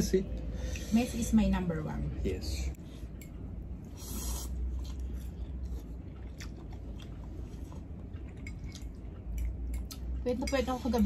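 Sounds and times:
wet chewing: 4.0 - 10.2.

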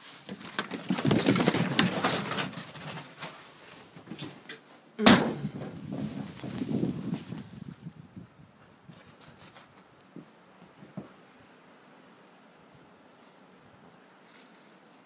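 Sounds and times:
rustling and scuffling: 0.0 - 11.7, 14.2 - 15.0.

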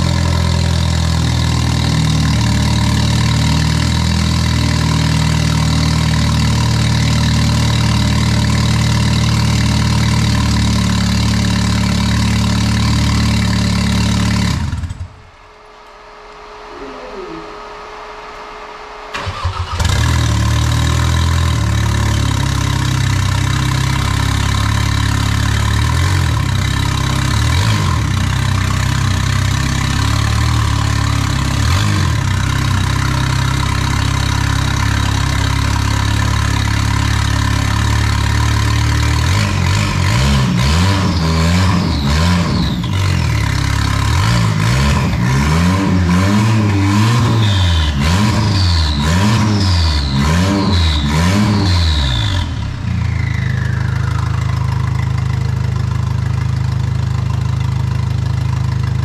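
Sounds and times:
engine revving: 0.0 - 15.1, 19.1 - 57.4
race car engine idling: 0.0 - 15.2, 16.0 - 40.2, 52.2 - 59.0
engine cranking: 19.1 - 20.2.

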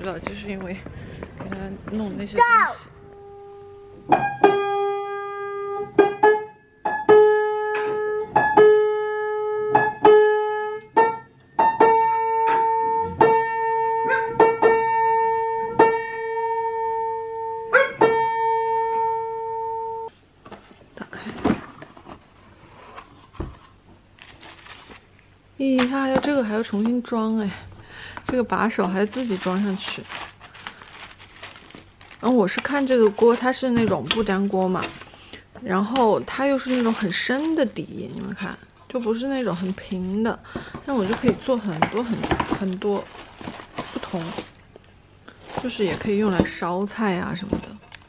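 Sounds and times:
faint handling noises: 28.0 - 48.0.

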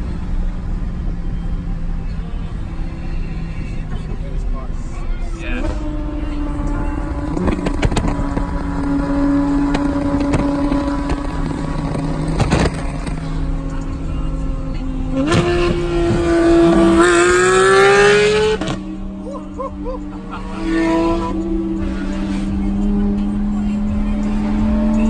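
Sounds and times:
sports car engine revving: 5.3 - 25.0
exhaust pops: 7.4 - 8.6, 9.7 - 13.2.

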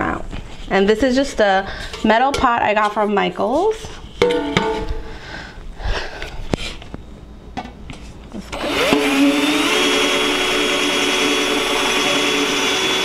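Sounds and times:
cordless drill motor whining: 8.5 - 13.0.

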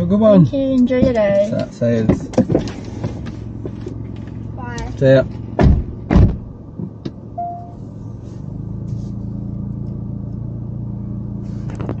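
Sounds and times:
car engine running: 0.0 - 12.0
short beep: 7.4 - 7.8.

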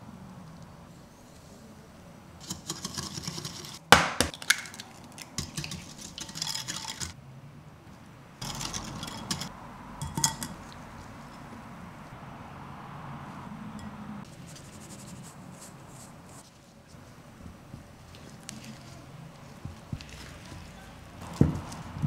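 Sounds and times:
utensils scraping and rustling: 2.4 - 3.9, 5.2 - 7.2, 8.4 - 11.4
dishes clinking: 8.4 - 10.7.

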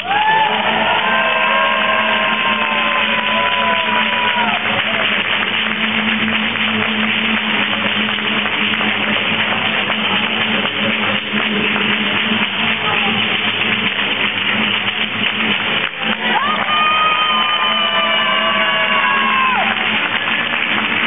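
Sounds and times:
fast rhythmic hand clapping: 0.0 - 21.0.

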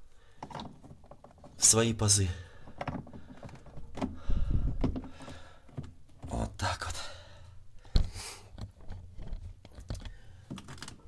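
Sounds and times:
plastic parts knocking and clicking: 0.3 - 1.7, 2.5 - 6.4, 7.8 - 11.0.

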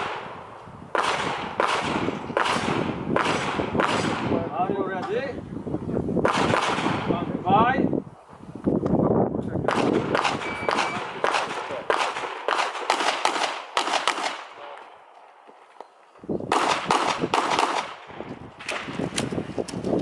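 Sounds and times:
handgun shots echoing: 9.7 - 14.6, 16.5 - 18.0.

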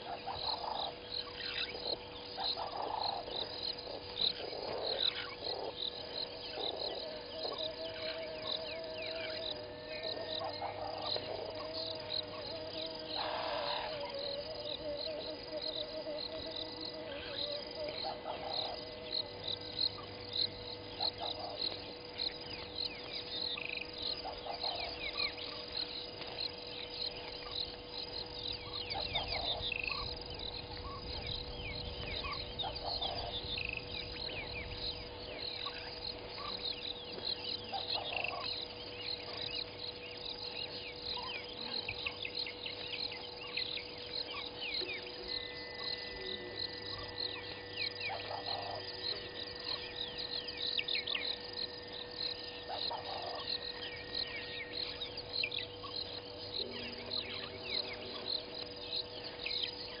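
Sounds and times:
insects and birds chirping: 0.0 - 60.0
steady hum: 0.0 - 60.0
lower call: 7.0 - 21.6, 44.3 - 58.6.

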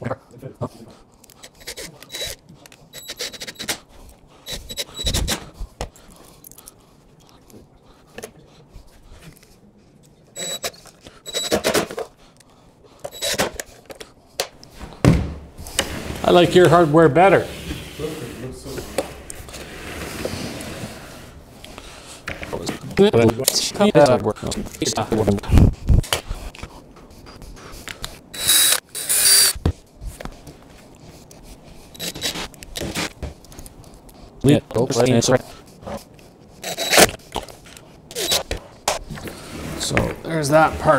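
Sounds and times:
cordless drill whine: 28.4 - 29.6.

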